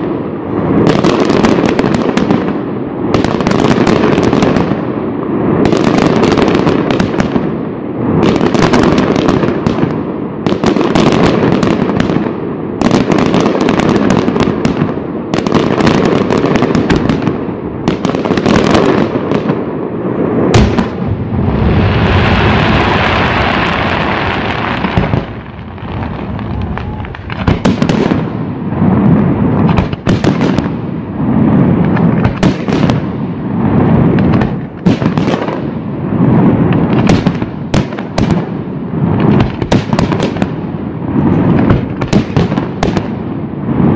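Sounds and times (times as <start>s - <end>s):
fireworks bursting with sharp bangs: 0.0s - 43.9s.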